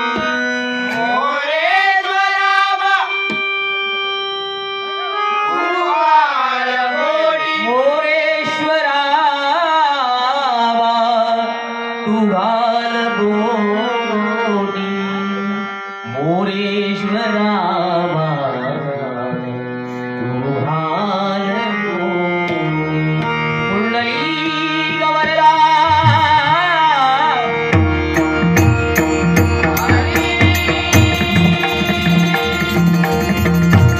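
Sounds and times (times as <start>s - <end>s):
man singing devotional song: 0.0s - 33.9s
held instrumental notes: 21.5s - 33.9s
hand drum beat: 27.8s - 33.9s.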